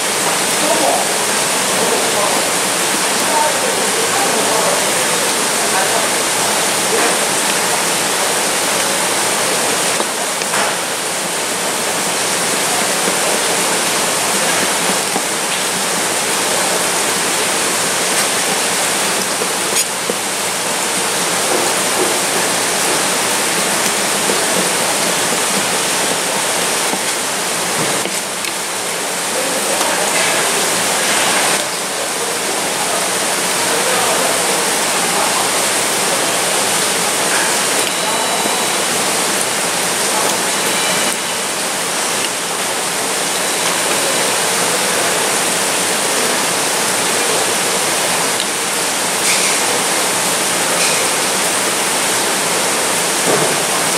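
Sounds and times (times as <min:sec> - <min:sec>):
running water: 0:00.0 - 0:53.9.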